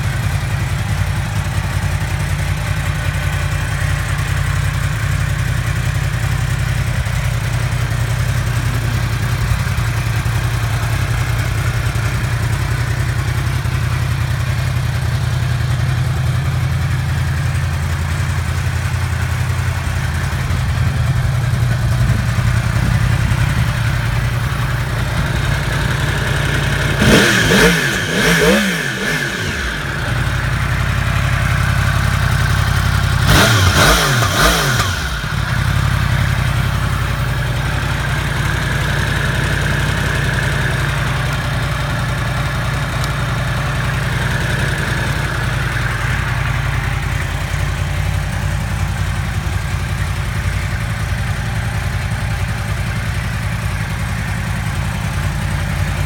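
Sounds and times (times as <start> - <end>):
motorcycle engine idling and revving: 0.0 - 56.0.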